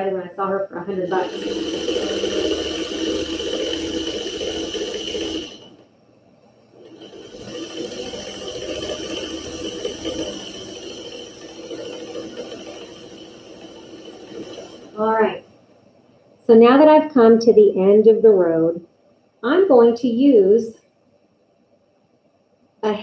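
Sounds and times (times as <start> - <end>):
sewing machine running: 0.9 - 5.8, 6.8 - 15.5.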